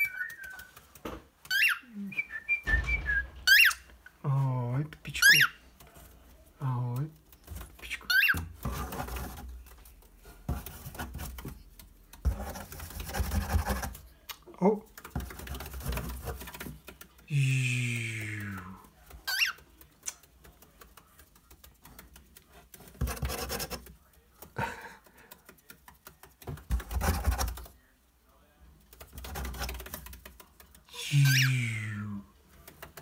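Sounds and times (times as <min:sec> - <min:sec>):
fingers scratching cardboard box: 0:12.2 - 0:14.0, 0:22.8 - 0:23.9, 0:25.6 - 0:27.6
low human vocal sound: 0:17.3 - 0:18.8.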